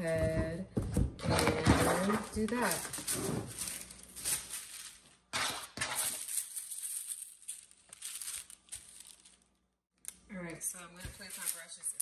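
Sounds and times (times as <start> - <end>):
tissue paper rustling: 2.0 - 5.2, 5.9 - 9.4.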